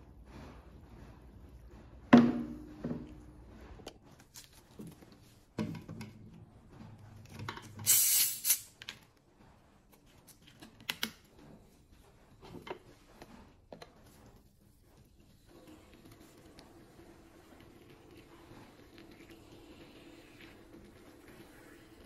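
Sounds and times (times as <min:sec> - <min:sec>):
thud on wooden table: 0:02.1 - 0:03.0
short loud hissing rush: 0:07.9 - 0:08.7.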